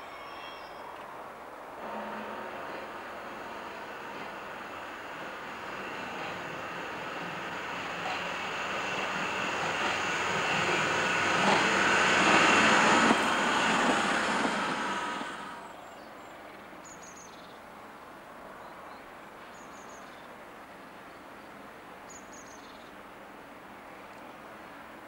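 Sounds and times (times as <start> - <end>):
diesel train passing: 1.2 - 15.9.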